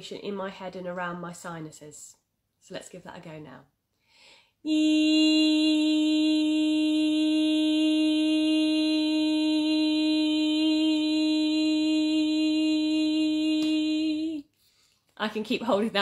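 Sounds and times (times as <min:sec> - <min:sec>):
woman singing a held vowel: 0:04.7 - 0:14.5.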